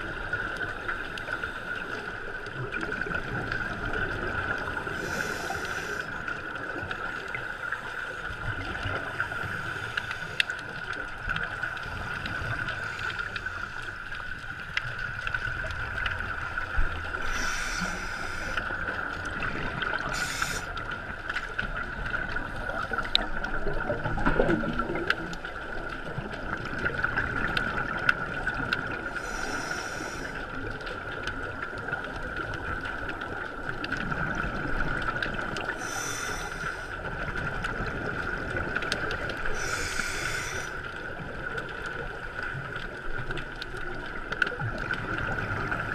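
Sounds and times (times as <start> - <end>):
underwater hum and rumbling: 0.0 - 45.9
scuba regulator breaths bubbling: 1.0 - 10.8, 15.5 - 21.2, 28.5 - 30.6, 35.2 - 41.5.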